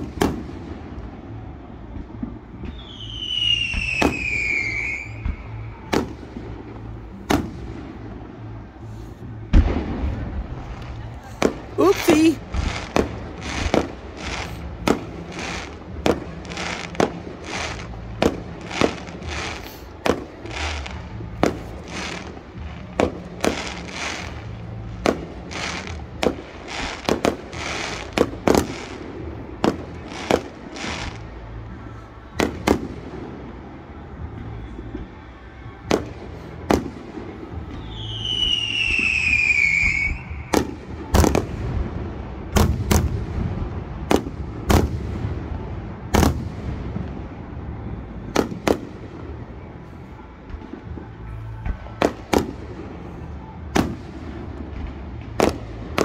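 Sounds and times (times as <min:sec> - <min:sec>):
loud firework bangs: 0:00.0 - 0:08.7, 0:09.5 - 0:33.5, 0:35.8 - 0:49.5, 0:50.4 - 0:56.0
falling firework whistle: 0:02.0 - 0:06.2, 0:37.6 - 0:41.7.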